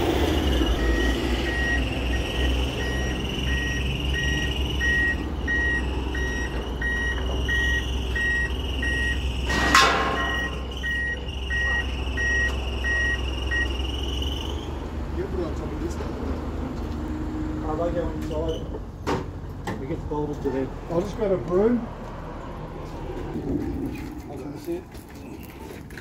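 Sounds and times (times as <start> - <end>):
forklift reversing alarm beeping: 0.0 - 14.9
forklift engine hum: 0.0 - 24.2.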